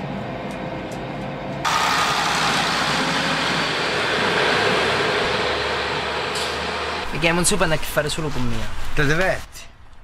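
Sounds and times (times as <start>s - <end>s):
train running noise rushing: 0.0s - 9.2s
train carriage rumble: 0.0s - 10.0s.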